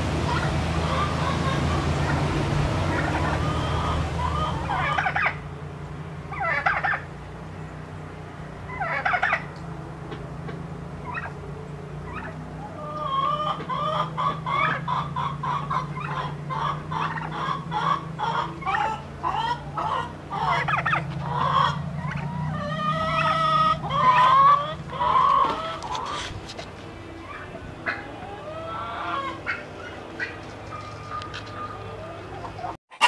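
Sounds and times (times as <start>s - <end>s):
chickens clucking and cackling: 0.0s - 33.0s.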